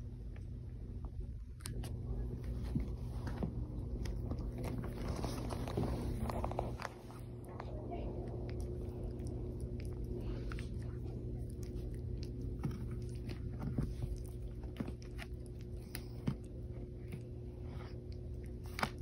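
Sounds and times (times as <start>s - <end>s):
low hum: 0.0s - 19.0s
puppy gnawing and licking wood: 2.8s - 19.0s.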